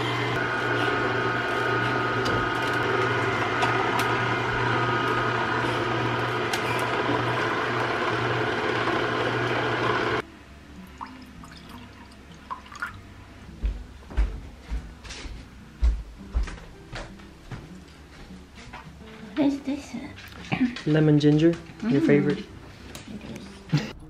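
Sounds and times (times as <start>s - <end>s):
juicer motor humming and grinding: 0.0s - 10.2s
liquid trickling: 10.8s - 13.0s.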